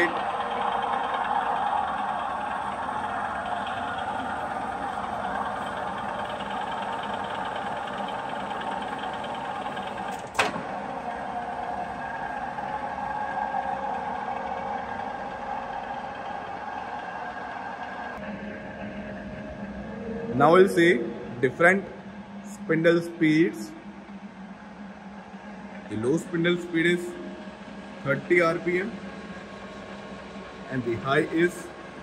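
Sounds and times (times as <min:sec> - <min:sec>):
milling machine feed whine: 0:00.0 - 0:32.0
sharp mechanical clunk: 0:10.1 - 0:10.7.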